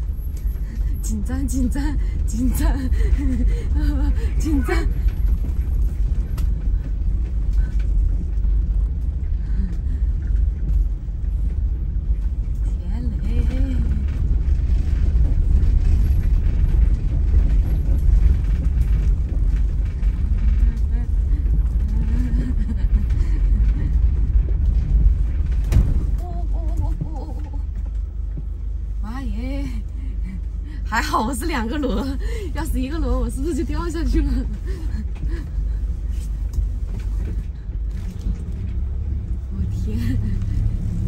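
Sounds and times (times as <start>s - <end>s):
engine and tyres rumbling: 0.0s - 41.0s
camper body creaking: 23.4s - 28.2s.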